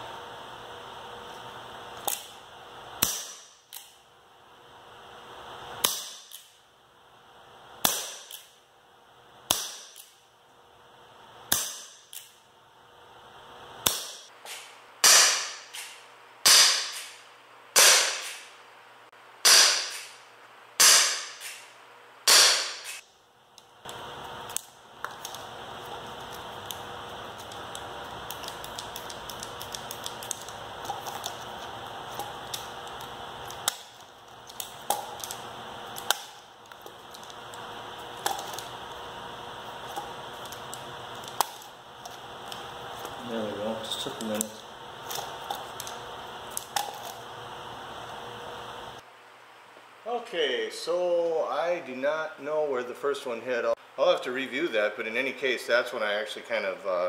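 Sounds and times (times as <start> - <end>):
air pistol shots: 13.8 - 17.2, 17.8 - 18.5, 19.4 - 20.2, 20.8 - 23.0.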